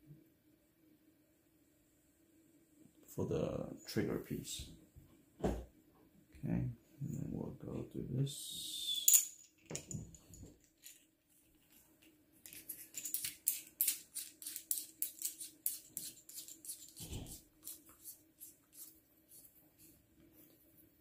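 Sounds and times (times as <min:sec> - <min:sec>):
dull thump: 0:05.4 - 0:05.7
small hard parts clicking: 0:12.4 - 0:17.1.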